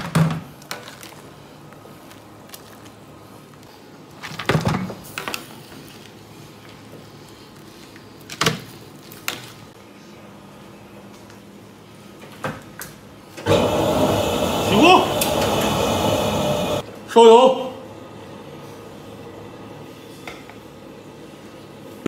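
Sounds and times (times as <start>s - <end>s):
steady low hum: 13.5s - 17.0s.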